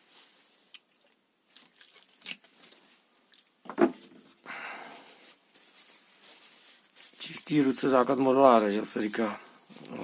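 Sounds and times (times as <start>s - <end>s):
hands rubbing: 5.0s - 10.0s.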